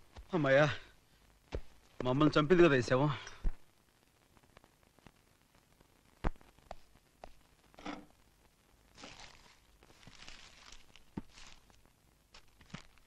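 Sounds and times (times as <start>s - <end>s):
faint rustling: 8.9s - 13.0s.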